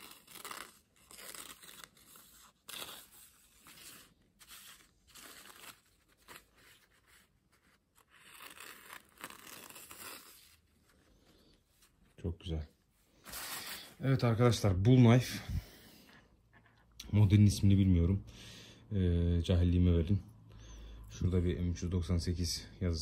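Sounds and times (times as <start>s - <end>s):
paper rustling: 0.0s - 12.2s.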